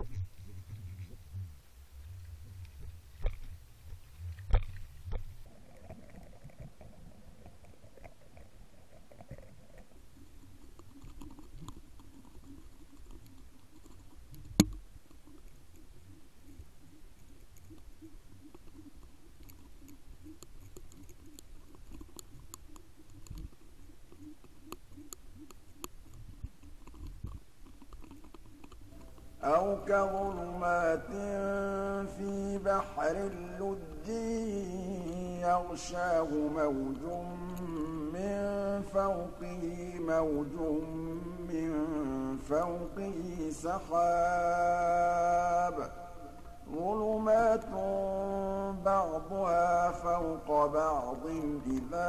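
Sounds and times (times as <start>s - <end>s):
fluttering low hum: 0.0s - 9.0s
sharp clicks and knocks: 2.6s - 5.4s, 10.6s - 15.5s.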